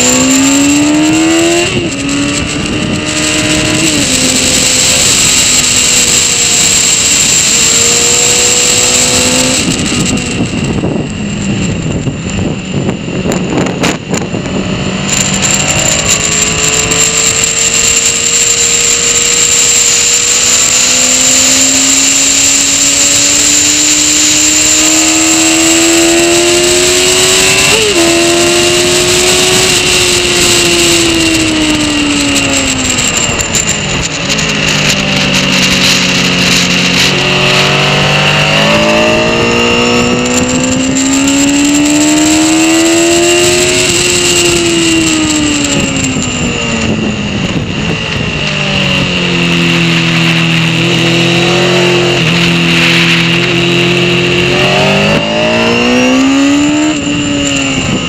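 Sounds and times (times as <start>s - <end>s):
motorcycle engine at speed: 0.0s - 58.0s
wind rushing: 0.0s - 58.0s.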